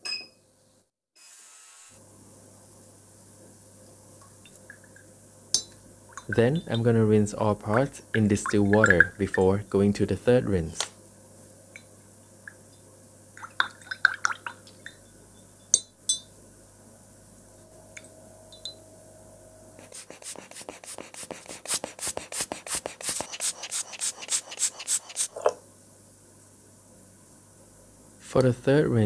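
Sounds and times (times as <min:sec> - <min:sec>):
water splashing in a jar: 0:07.7 - 0:09.5, 0:13.4 - 0:15.0
metal clinking against glass: 0:15.6 - 0:16.3
air blower puffs: 0:19.8 - 0:25.4.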